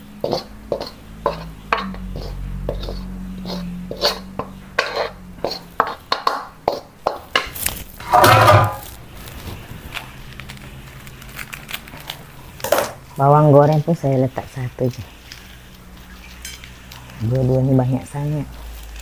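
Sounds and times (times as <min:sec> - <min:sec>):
metal scraping frying pan: 0:00.2 - 0:09.0
utensil clatter: 0:00.2 - 0:09.0.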